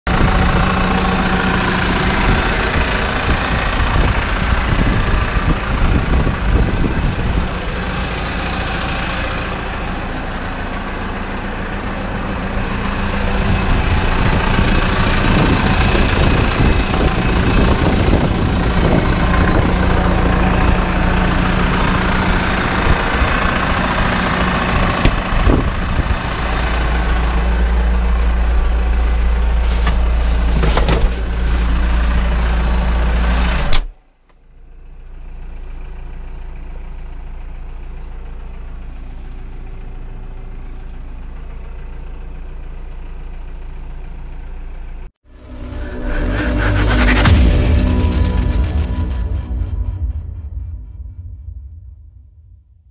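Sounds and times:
tractor diesel engine idling: 0.0s - 49.2s
fluttering low rumble: 0.1s - 33.4s, 45.3s - 52.9s.

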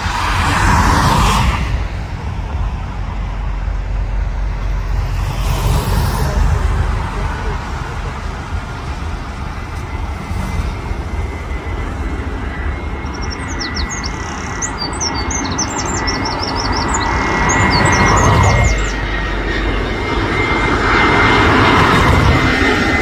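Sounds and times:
jet engine roar with whine: 0.0s - 23.0s
bird chirping: 13.0s - 19.1s.

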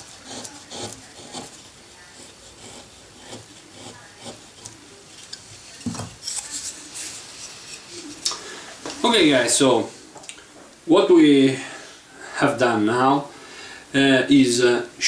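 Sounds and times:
chisel cutting wood: 0.0s - 4.8s.

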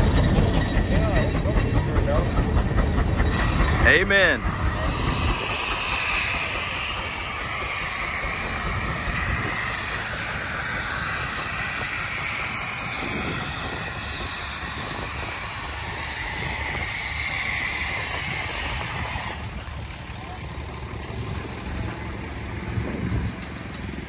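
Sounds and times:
plow scraping through soil: 0.0s - 24.0s.

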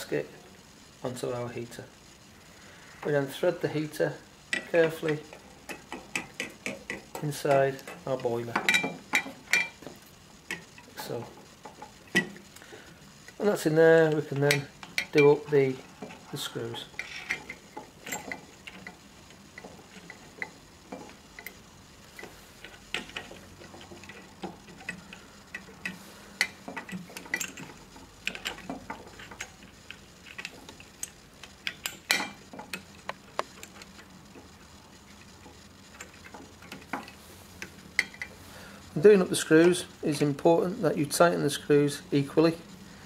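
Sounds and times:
screws turning into metal: 14.1s - 19.0s.

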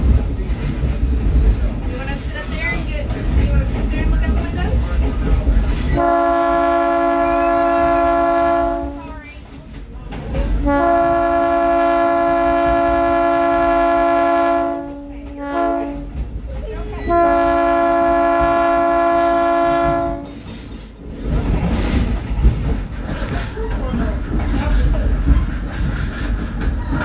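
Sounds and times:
rumble and clatter of rolling cars: 0.0s - 27.0s
train air horn blasts: 6.0s - 9.3s, 10.6s - 16.2s, 17.0s - 20.5s.

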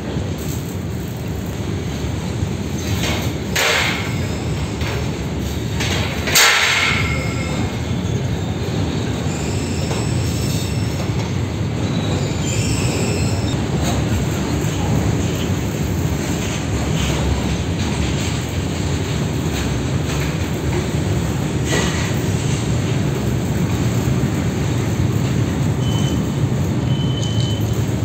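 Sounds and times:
train wheels rumbling on rail: 0.0s - 28.0s
wheel squeal: 7.0s - 13.6s, 25.7s - 28.0s.

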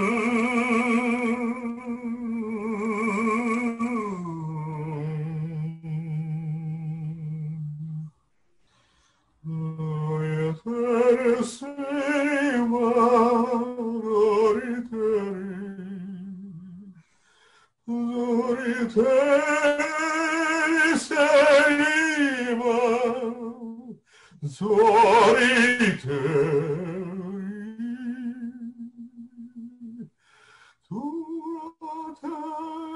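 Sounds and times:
man singing with vibrato: 0.0s - 8.2s, 9.4s - 17.0s, 17.8s - 32.9s
breaths: 8.3s - 9.4s, 17.0s - 17.8s, 24.0s - 24.4s, 30.1s - 30.9s.

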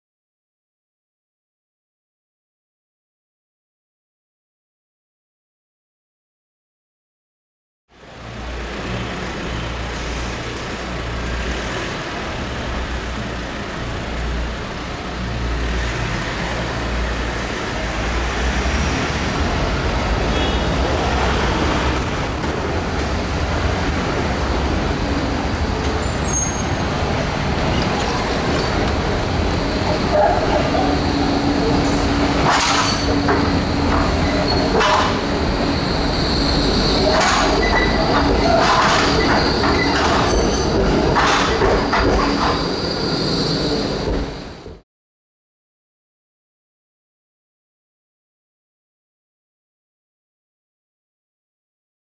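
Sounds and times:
tram rumble: 7.9s - 44.8s.

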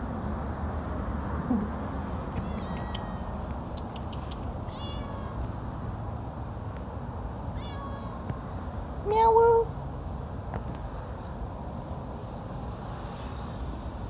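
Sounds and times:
cat meowing: 2.4s - 3.4s, 4.7s - 5.4s, 7.6s - 8.2s.

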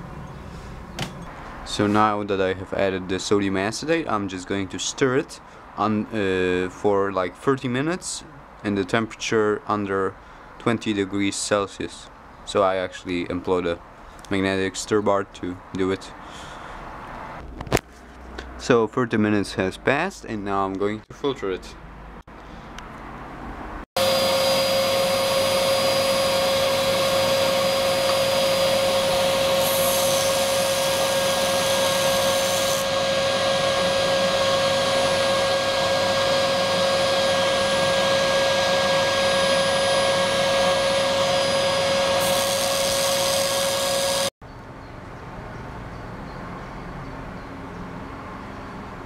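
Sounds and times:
vacuum pump motor drone: 24.0s - 44.3s.

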